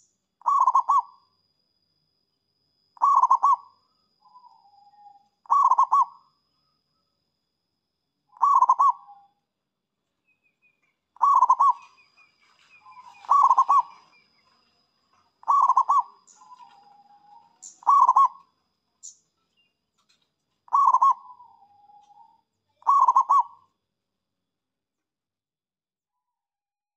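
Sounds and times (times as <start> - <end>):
dove cooing: 0.4 - 1.1, 3.0 - 3.7, 4.4 - 6.2, 8.4 - 9.2, 11.2 - 14.2, 15.4 - 18.5, 20.7 - 23.6.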